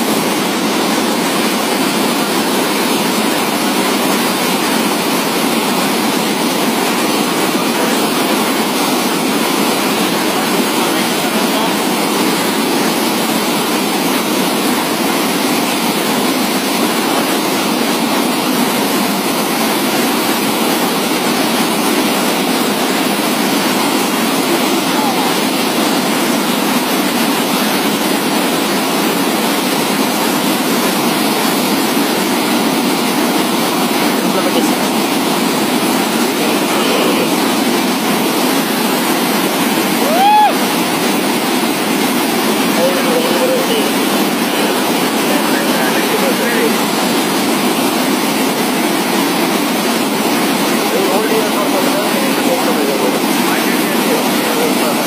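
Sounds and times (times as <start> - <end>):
water gushing into a channel: 0.0 - 55.0.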